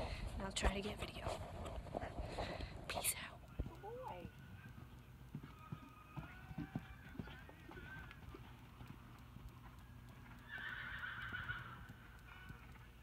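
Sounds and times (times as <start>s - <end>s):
hooves cantering on sand: 0.0s - 13.0s
horse whinnying: 5.5s - 8.2s, 10.4s - 12.0s.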